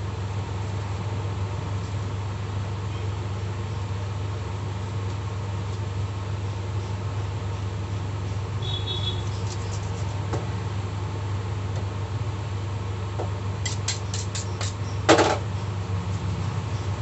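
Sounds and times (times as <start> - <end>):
steady low hum: 0.0 - 17.0
knife on cutting board: 13.6 - 14.8.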